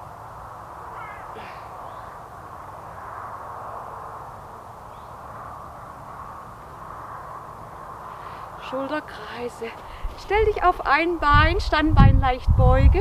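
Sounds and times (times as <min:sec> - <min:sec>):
low outdoor rumble: 0:00.0 - 0:13.0
faint short calls: 0:00.8 - 0:02.9.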